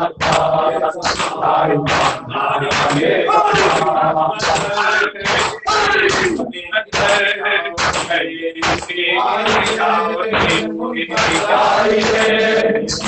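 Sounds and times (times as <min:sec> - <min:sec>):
group of men chanting: 0:00.0 - 0:13.0
man chanting into a microphone: 0:00.0 - 0:13.0
open-hand chest slaps: 0:00.2 - 0:06.4, 0:07.0 - 0:07.2, 0:07.8 - 0:10.6, 0:11.2 - 0:13.0.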